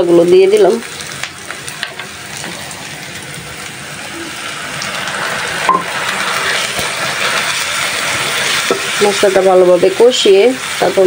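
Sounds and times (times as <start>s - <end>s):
onions sizzling in oil: 0.0s - 11.0s
spatula stirring in pan: 6.1s - 11.0s.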